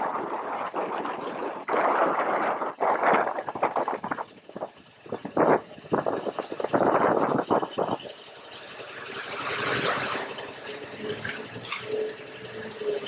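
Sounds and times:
wind buffeting microphone: 0.0s - 8.1s.

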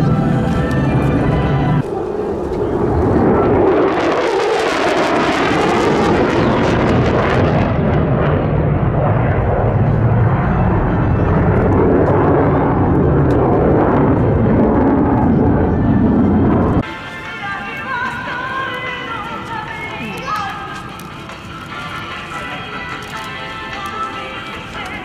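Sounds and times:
jet flying past: 0.0s - 17.0s.

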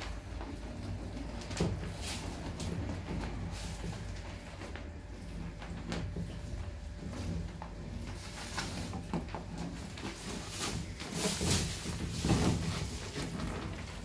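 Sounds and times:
painting tool scraping canvas: 7.0s - 14.0s.

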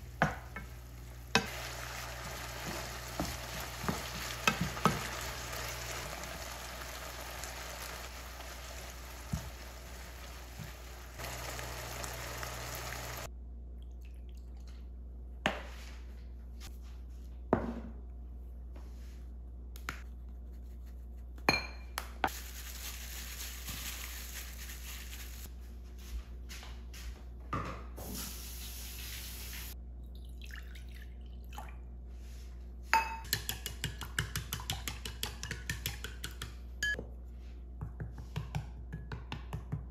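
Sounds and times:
food sizzling in a pan: 0.0s - 13.3s, 28.2s - 29.8s
wooden spatula stirring: 1.4s - 6.8s.

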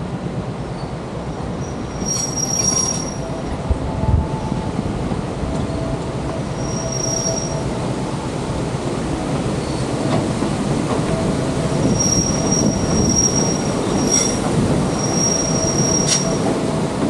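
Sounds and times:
train wheels rumbling on rail: 0.0s - 17.0s
wheel squeal: 1.6s - 3.2s, 11.8s - 16.4s.

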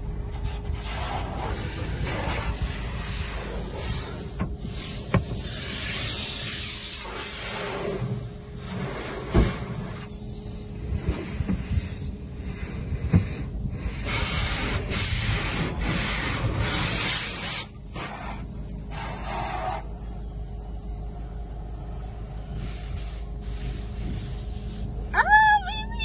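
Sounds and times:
low hum: 0.0s - 26.0s
steady hissing noise: 22.4s - 25.1s.

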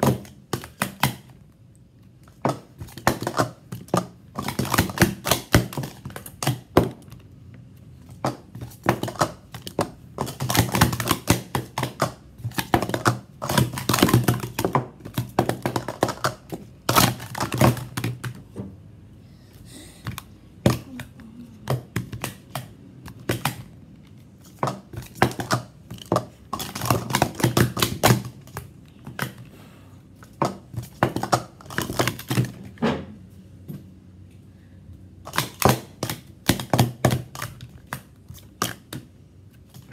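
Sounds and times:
plastic cups clattering: 2.2s - 7.3s, 8.0s - 18.6s, 20.0s - 29.5s, 30.2s - 32.8s, 35.2s - 39.9s.

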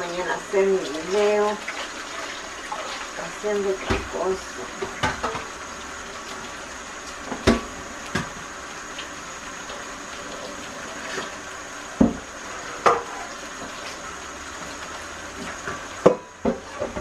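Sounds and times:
tap running into steel sink: 4.8s - 5.5s, 7.3s - 8.4s, 12.0s - 13.2s.

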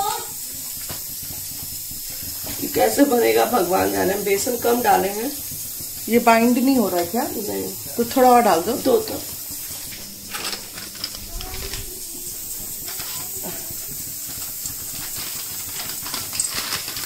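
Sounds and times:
gas burner hissing: 0.0s - 17.0s
plastic packet crinkling: 9.9s - 17.0s.

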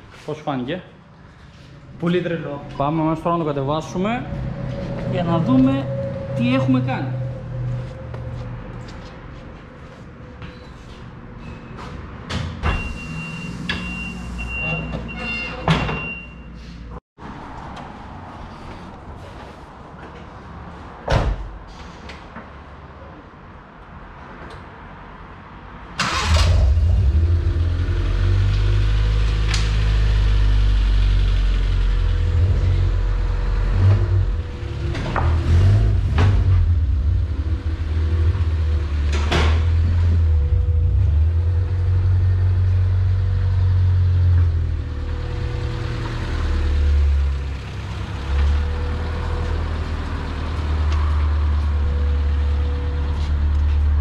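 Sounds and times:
car engine starting and idling: 26.0s - 54.0s.

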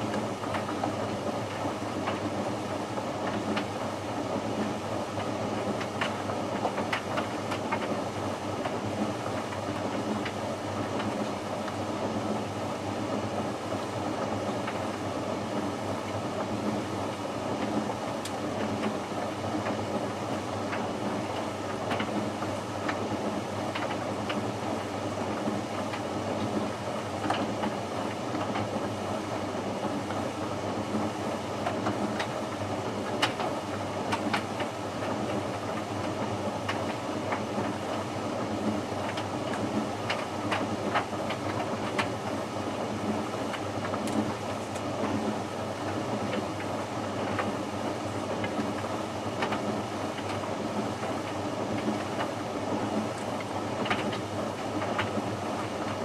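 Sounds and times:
light clicks from tumbling load: 33.0s - 56.0s.

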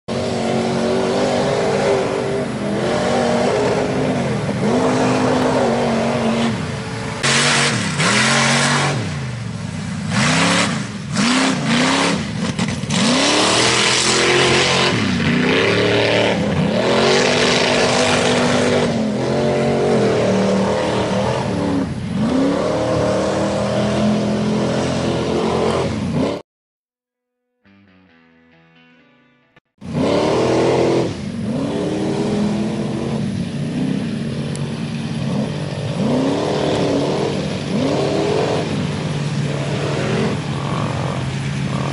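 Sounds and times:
truck engine revving: 0.1s - 26.4s, 29.8s - 41.9s.

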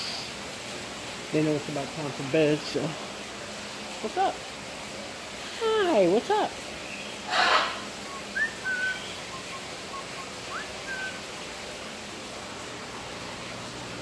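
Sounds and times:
parrot whistled chirps: 7.0s - 11.2s
parrot harsh squawk: 7.3s - 11.2s.

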